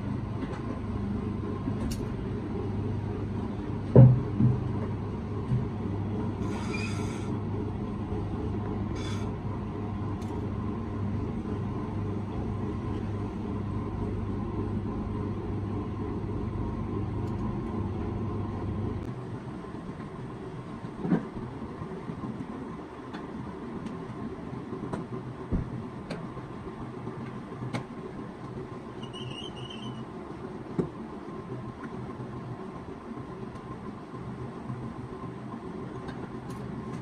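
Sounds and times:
low mechanical hum: 0.0 - 37.0
knock: 4.0 - 4.6.

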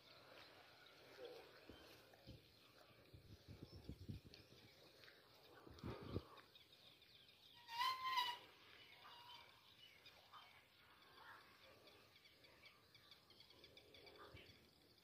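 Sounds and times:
faint bird chirps: 0.0 - 15.0
pitched animal call: 7.6 - 9.3.

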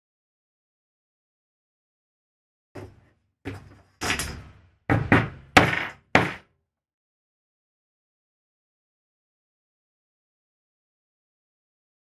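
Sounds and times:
hammer striking metal tool: 4.9 - 6.4.

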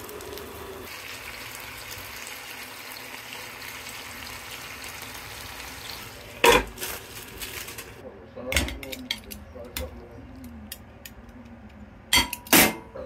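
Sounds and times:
food sizzling in a frying pan: 0.0 - 8.0.

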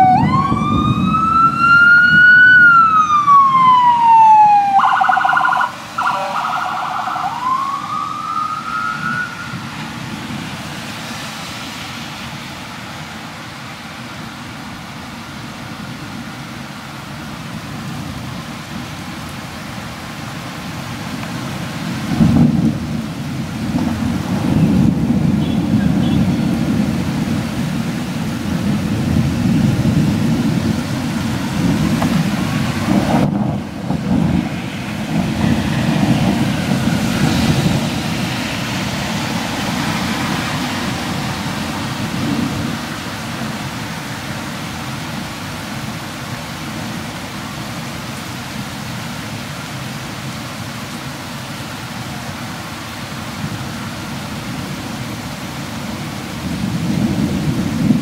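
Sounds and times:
rolling thunder rumble: 0.0 - 4.8, 21.9 - 43.8, 56.4 - 58.0
rain falling: 0.0 - 58.0.

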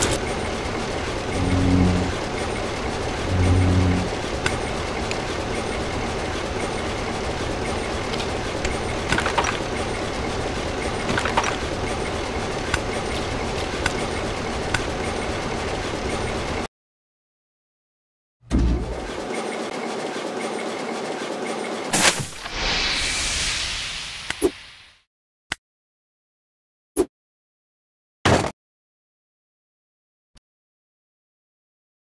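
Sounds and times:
vehicle-like rumble: 0.0 - 15.3
short low tones: 1.3 - 2.2, 3.2 - 4.2.

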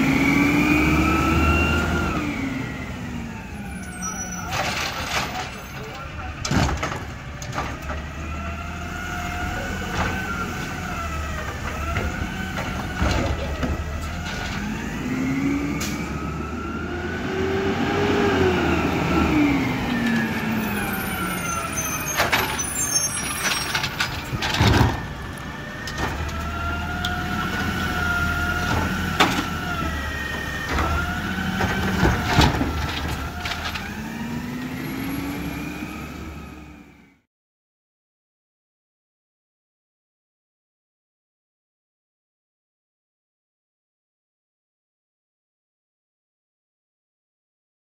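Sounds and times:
garbage truck engine running: 0.1 - 36.9
metal bangs of carts dumped: 4.0 - 8.0, 21.5 - 26.6, 28.4 - 34.1
hydraulic arm whining: 18.2 - 37.0.

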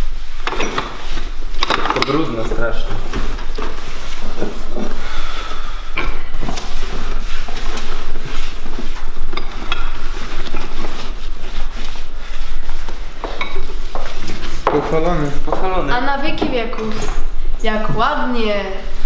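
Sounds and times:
cloth wiping wood: 2.9 - 5.4, 6.3 - 14.6
small knocks and rustles: 6.0 - 17.3.

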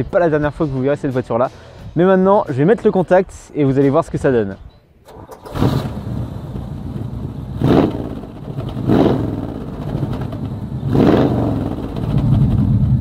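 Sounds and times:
car engine idling and revving: 5.1 - 13.0.

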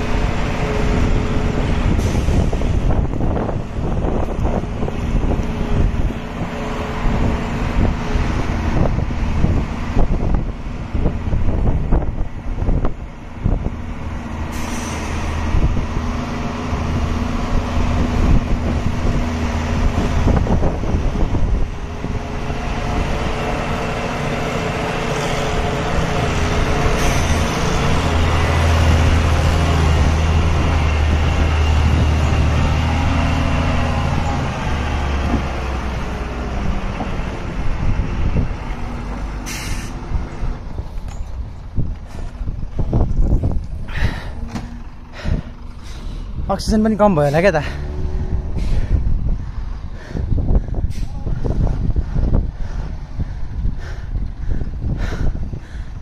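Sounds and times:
diesel truck engine running: 0.0 - 56.0
short hisses: 39.5 - 40.0.

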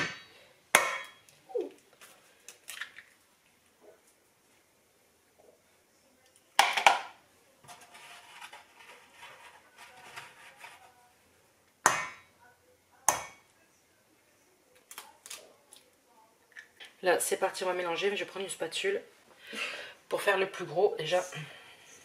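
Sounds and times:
utensils scraping and clattering: 7.7 - 10.9.

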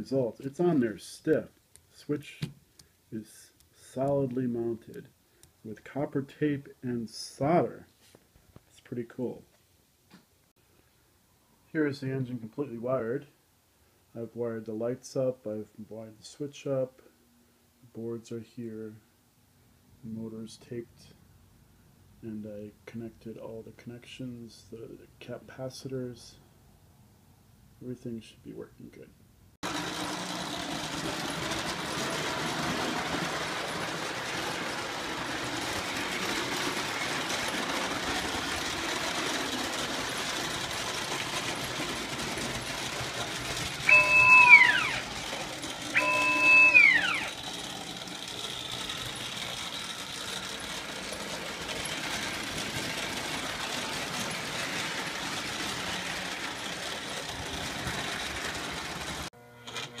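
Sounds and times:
model train motor and wheels rumbling: 29.6 - 60.0
train whistle blasts: 43.8 - 45.1, 46.0 - 47.4.

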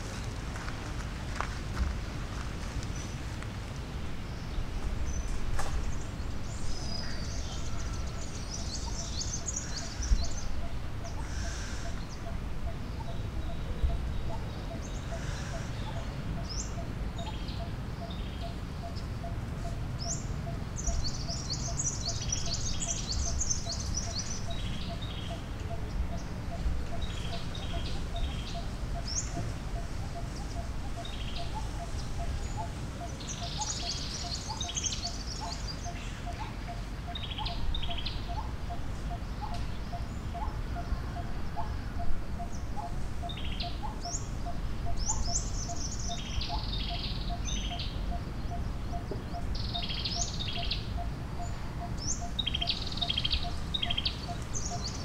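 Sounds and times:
birds chirping and twittering: 0.0 - 55.0.

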